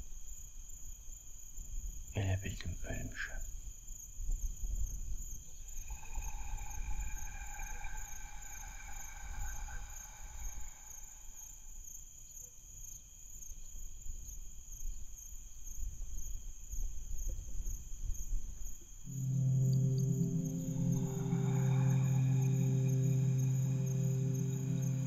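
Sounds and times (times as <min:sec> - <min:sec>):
insect chirring: 0:02.9 - 0:16.4, 0:17.6 - 0:25.0
low wind-like rumble: 0:04.4 - 0:11.7
sustained ambient tone: 0:05.6 - 0:11.8, 0:19.1 - 0:25.0
low musical drone: 0:05.8 - 0:11.4, 0:19.1 - 0:25.0.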